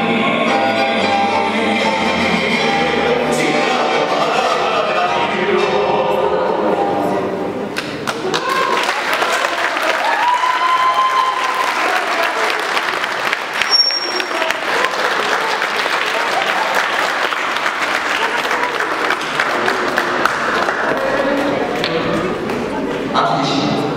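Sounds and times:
audience applauding: 0:07.8 - 0:23.0.

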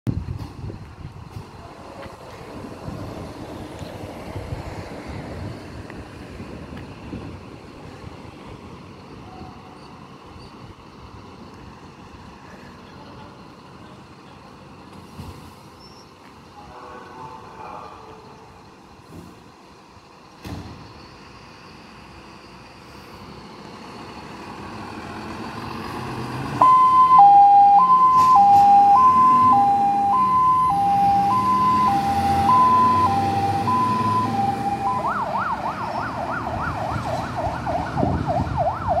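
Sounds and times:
diesel engine pulling away: 0:00.1 - 0:39.0
siren yelp: 0:26.6 - 0:39.0
two-tone siren: 0:26.6 - 0:39.0.

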